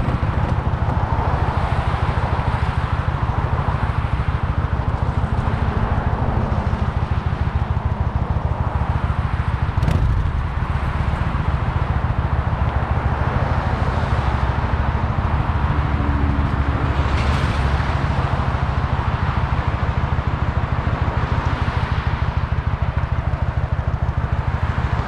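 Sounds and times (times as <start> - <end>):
wind on microphone: 0.0 - 2.7, 9.7 - 13.4
motorcycle engine running: 0.0 - 25.0
sharp knock: 9.8 - 10.9.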